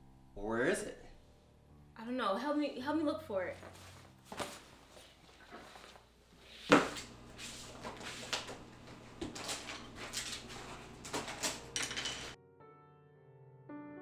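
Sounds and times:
shuffling and rustling: 3.6s - 12.4s.

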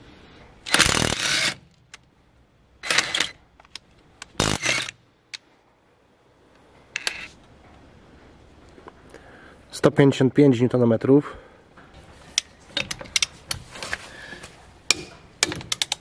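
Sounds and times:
impact wrench hammering: 14.9s - 16.0s.

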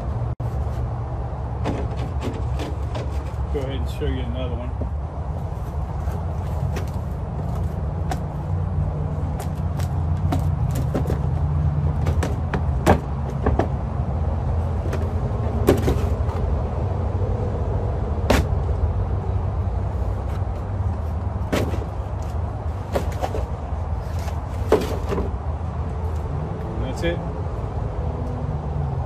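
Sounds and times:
plastic knocking on concrete: 12.0s - 13.8s.

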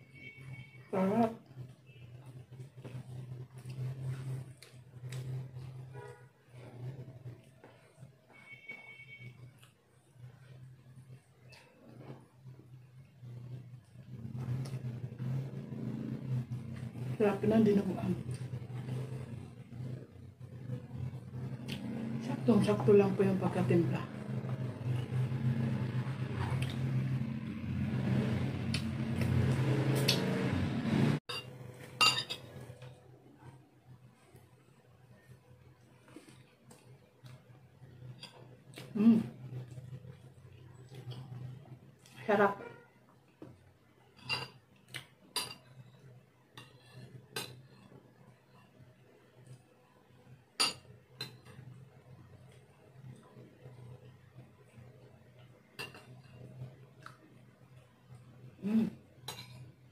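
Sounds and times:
low background hum: 0.0s - 59.9s
spoon clinking against dishes: 31.3s - 32.5s, 44.2s - 44.6s, 45.3s - 45.8s.

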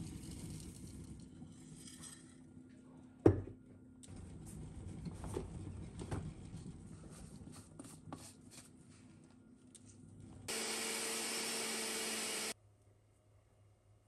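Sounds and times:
blender motor grinding oats: 10.5s - 12.6s.

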